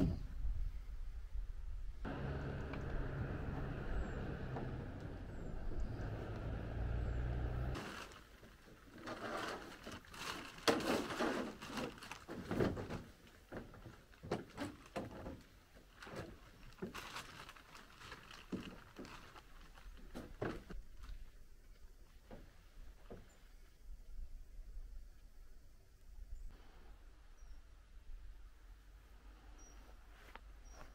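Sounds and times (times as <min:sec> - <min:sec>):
low rumble: 0:00.0 - 0:07.8
plastic tarp rustling: 0:07.8 - 0:21.3.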